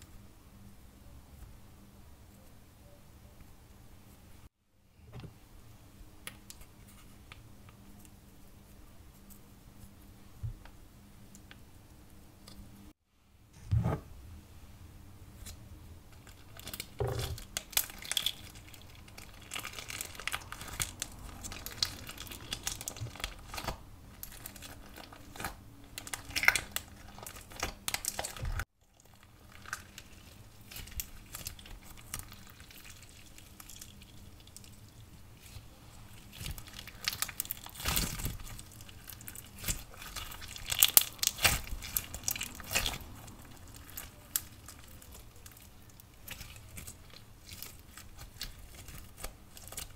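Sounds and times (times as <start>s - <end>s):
slime crackling and clicking: 36.3s - 49.9s.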